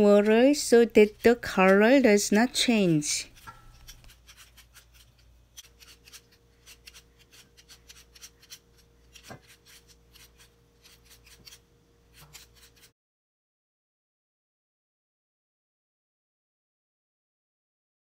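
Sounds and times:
peeler scraping potato skin: 0.0s - 12.9s.

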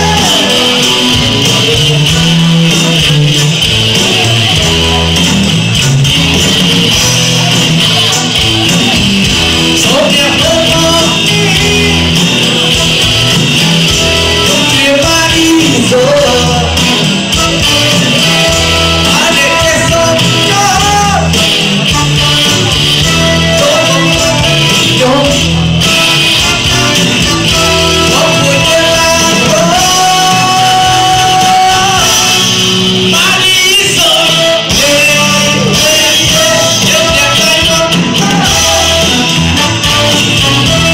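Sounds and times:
person singing: 0.0s - 5.3s, 6.2s - 40.9s
live band playing: 0.0s - 40.9s.

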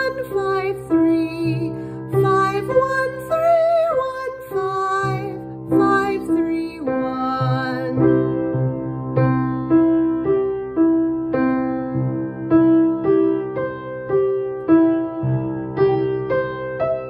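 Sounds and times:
woman singing arpeggios: 0.0s - 8.2s.

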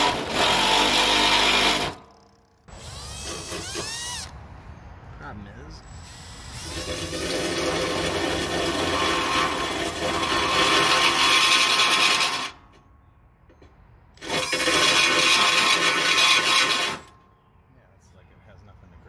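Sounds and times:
drill cutting plastic: 0.0s - 2.1s, 2.7s - 4.3s, 6.0s - 12.5s, 14.2s - 17.1s.

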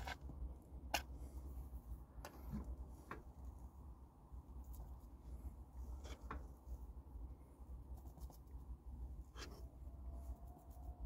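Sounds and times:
utensil scraping a pan: 0.0s - 0.2s.

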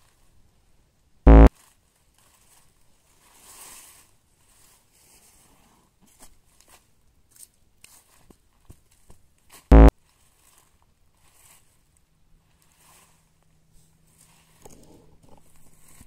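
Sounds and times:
loud deep buzzing tone: 1.3s - 1.5s, 9.7s - 9.9s
dry leaves rustling: 1.5s - 5.2s, 9.5s - 13.3s.

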